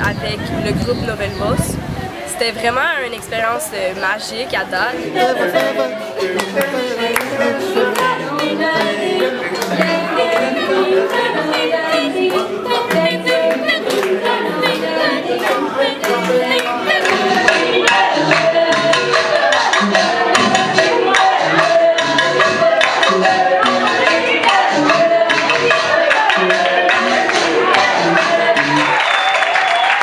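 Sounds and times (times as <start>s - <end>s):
group singing into microphones: 0.0s - 30.0s
percussive beat: 4.7s - 30.0s.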